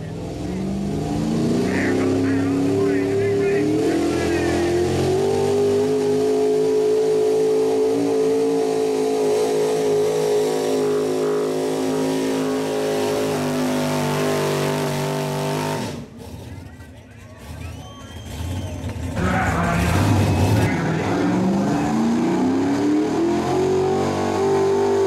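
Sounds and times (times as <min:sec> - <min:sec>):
truck engine running flat out: 0:00.0 - 0:25.0.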